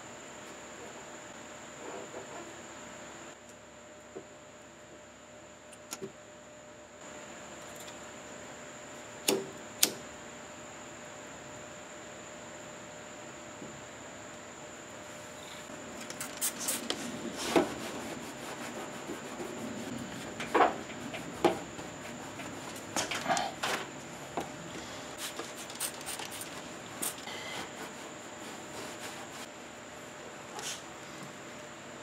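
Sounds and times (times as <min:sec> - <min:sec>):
steady hiss: 0:06.9 - 0:32.0
towel rubbing car panel: 0:17.3 - 0:22.9, 0:27.4 - 0:29.5.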